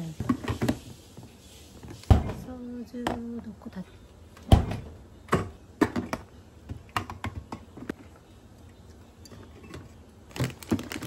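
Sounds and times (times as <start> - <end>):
food packages clicking and tapping: 5.8 - 8.1, 9.8 - 11.0.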